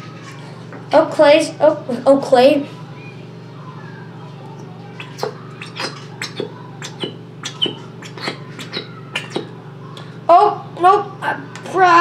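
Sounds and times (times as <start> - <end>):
squeeze bottle sputtering: 4.8 - 9.5.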